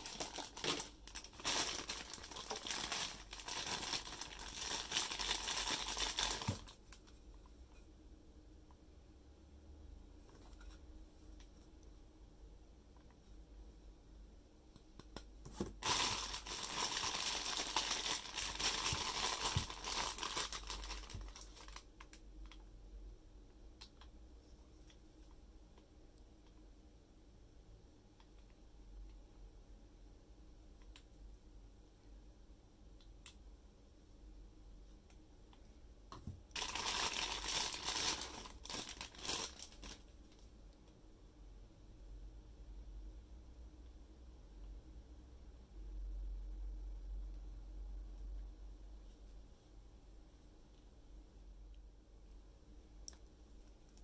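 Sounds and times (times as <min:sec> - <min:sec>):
packaging crinkling: 0:00.0 - 0:07.1, 0:15.6 - 0:22.2, 0:36.5 - 0:40.1.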